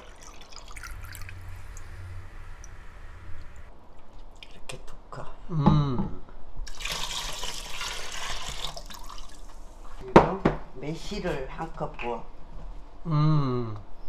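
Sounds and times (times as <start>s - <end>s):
liquid splashing into a container: 0.0s - 3.7s, 6.7s - 9.5s
liquid trickling into a glass cup: 0.0s - 3.7s, 6.7s - 9.5s.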